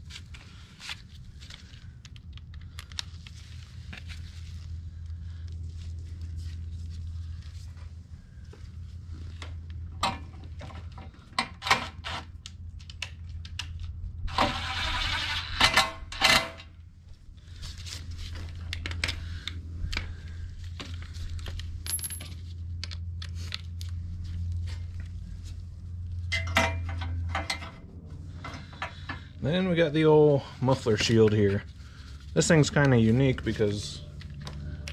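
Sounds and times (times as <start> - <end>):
steady low hum: 0.0 - 34.9
metal parts and tools clinking: 21.4 - 23.9, 26.3 - 27.8.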